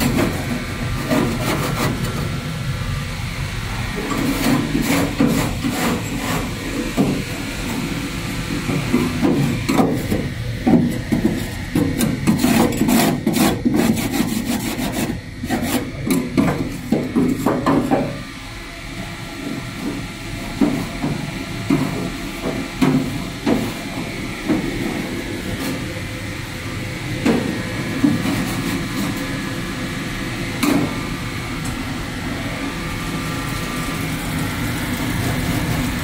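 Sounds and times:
hand scraping and rubbing: 0:04.1 - 0:06.9.

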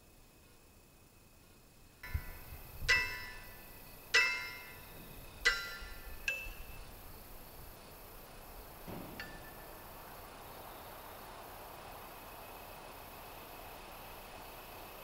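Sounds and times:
metal bell strikes ringing: 0:02.0 - 0:04.9, 0:05.5 - 0:06.8.

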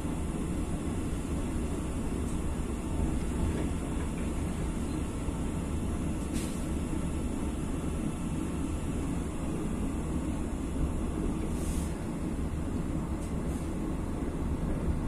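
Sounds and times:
train carriage rumbling: 0:00.0 - 0:15.0.

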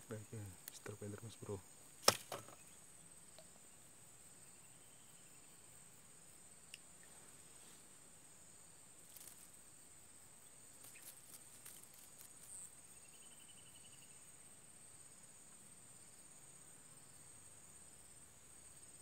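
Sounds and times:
insects trilling: 0:00.0 - 0:19.0
faint ticks: 0:00.1 - 0:02.6, 0:03.3 - 0:03.6, 0:06.6 - 0:07.2, 0:09.0 - 0:09.6, 0:10.7 - 0:12.7.

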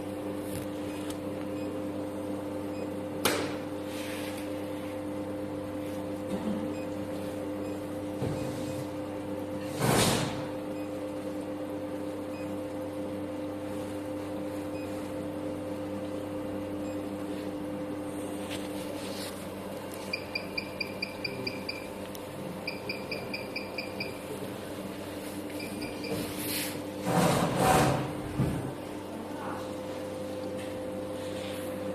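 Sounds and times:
steady low hum: 0:00.0 - 0:31.9
short high beeps: 0:20.1 - 0:22.0, 0:22.6 - 0:24.2.

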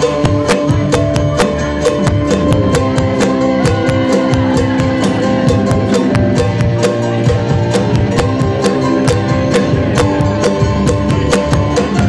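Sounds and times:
live band playing: 0:00.0 - 0:12.0
steady drum beat: 0:00.0 - 0:12.0.

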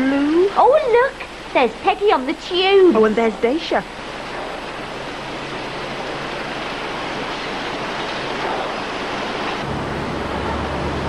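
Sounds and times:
printing press rushing: 0:00.5 - 0:11.0
low hum: 0:03.9 - 0:11.0
deep drone: 0:04.2 - 0:11.0.

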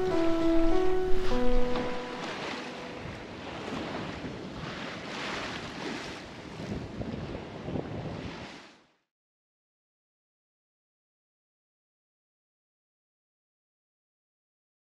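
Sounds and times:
wind buffeting microphone: 0:00.0 - 0:08.7
water rushing along boat hull: 0:00.0 - 0:09.0.

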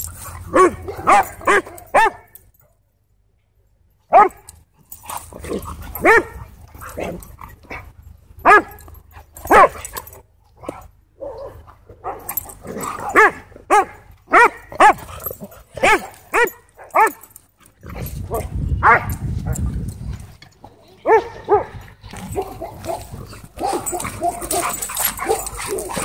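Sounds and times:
dogs barking: 0:00.0 - 0:02.4, 0:04.1 - 0:04.5, 0:05.3 - 0:17.3, 0:18.0 - 0:19.6, 0:21.0 - 0:26.0.

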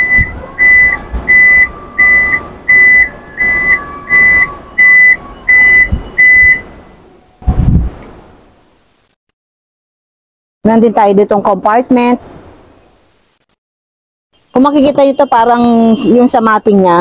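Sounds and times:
warning buzzer beeping: 0:00.0 - 0:06.7.

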